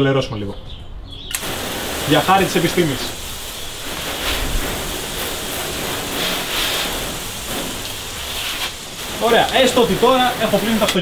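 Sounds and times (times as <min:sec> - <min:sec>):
hose water spraying on car: 0:01.3 - 0:11.0.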